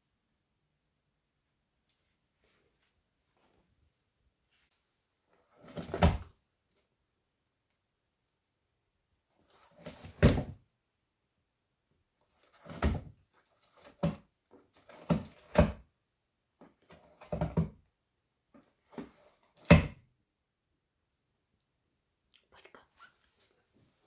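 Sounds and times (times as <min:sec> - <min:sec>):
cat thumping inside cardboard box: 0:05.6 - 0:06.3, 0:09.8 - 0:10.6, 0:12.5 - 0:13.2, 0:17.0 - 0:17.8.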